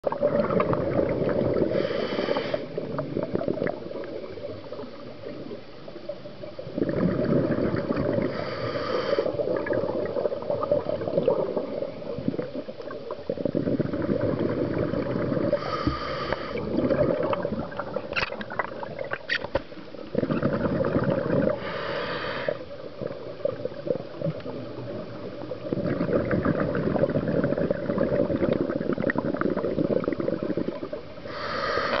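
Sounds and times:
gurgling exhaled bubbles: 0.0 - 32.0
diver breathing through regulator: 1.6 - 2.9, 7.0 - 9.5, 15.4 - 16.8, 21.4 - 22.7, 31.2 - 32.0
short hisses: 1.7 - 2.7.

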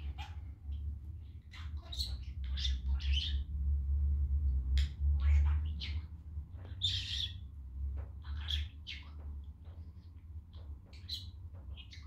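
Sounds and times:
budgerigar chirping: 0.0 - 0.8, 1.5 - 3.4, 5.2 - 7.4, 10.9 - 12.0
low rumble: 0.0 - 11.9.

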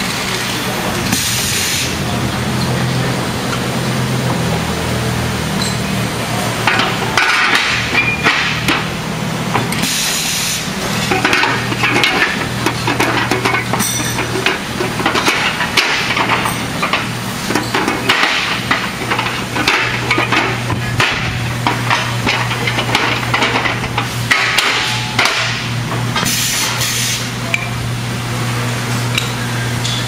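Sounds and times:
metal parts clanking and knocking: 6.6 - 8.9, 9.5 - 27.8.

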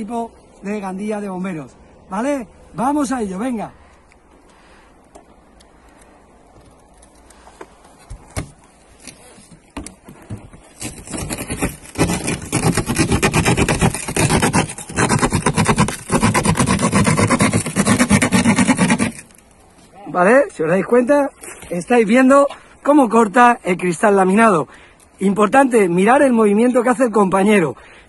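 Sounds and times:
saw blade grating through glass: 10.9 - 19.3.

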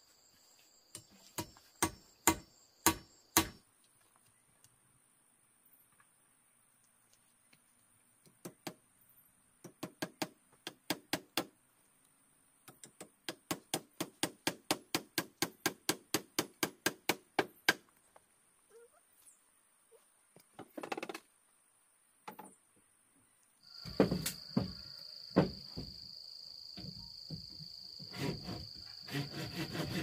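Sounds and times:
tool knocking on bamboo: 1.0 - 3.6, 23.8 - 26.0.

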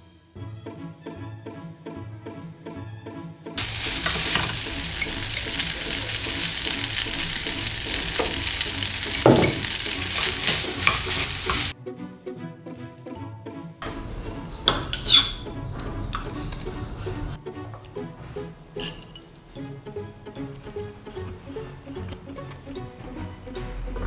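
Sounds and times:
background music with steady beat: 0.0 - 24.0
rice sizzling in a frying pan: 3.6 - 11.8
spatula scraping and knocking pan: 3.6 - 11.8.

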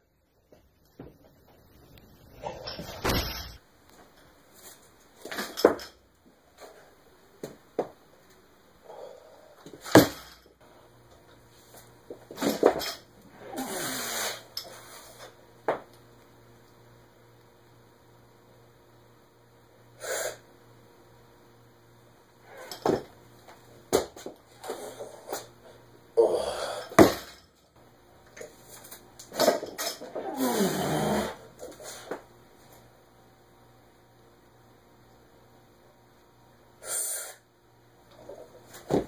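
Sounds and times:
barbell thudding on concrete: 27.0 - 27.4.

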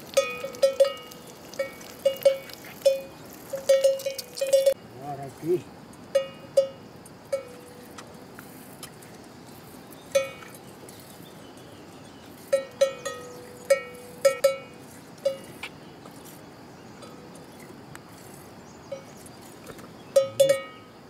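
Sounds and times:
cow bell clanking: 0.0 - 4.8, 6.1 - 7.8, 10.2 - 10.5, 12.5 - 15.5, 20.2 - 20.9.

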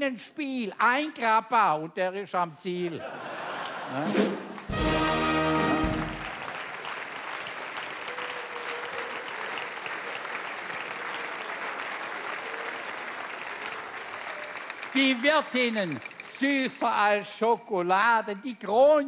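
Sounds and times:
audience applauding: 3.6 - 17.2.

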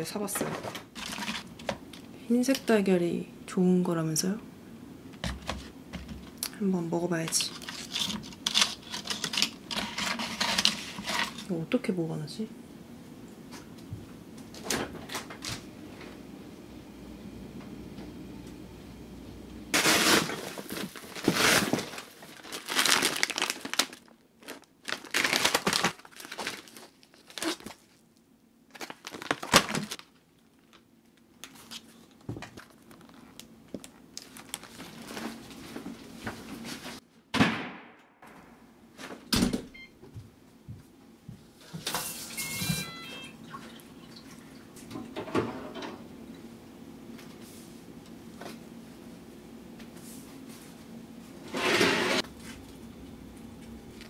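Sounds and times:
foil and plastic crinkling: 1.0 - 1.6, 19.8 - 28.0, 28.7 - 37.0.

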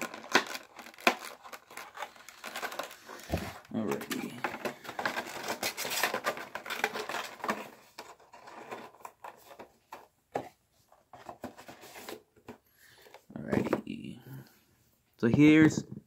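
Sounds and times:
packaging crinkling: 0.0 - 9.7
packaging rustling: 0.0 - 13.7.

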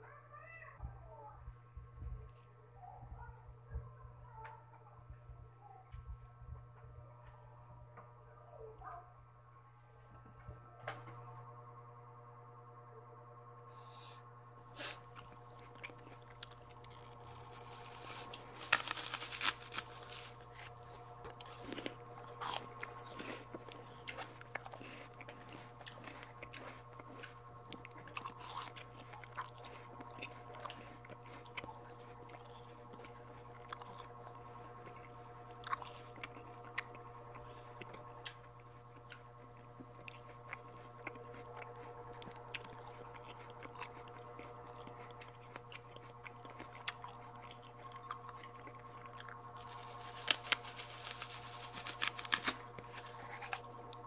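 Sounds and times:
biting and chewing fruit: 14.6 - 54.0.

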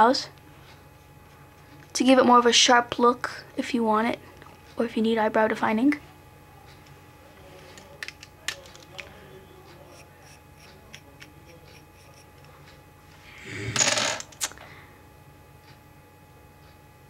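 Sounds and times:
makeup items clicking: 7.8 - 9.1.

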